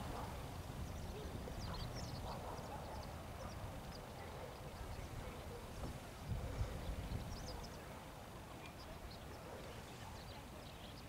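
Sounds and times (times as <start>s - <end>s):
wind rumbling on microphone: 0.0s - 8.2s.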